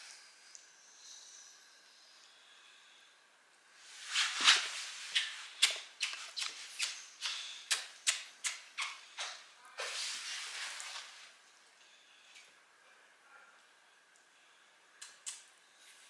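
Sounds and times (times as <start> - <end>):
jacket rustling on leather sofa: 3.8 - 5.2
kissing smacks: 5.1 - 9.4, 15.0 - 15.5.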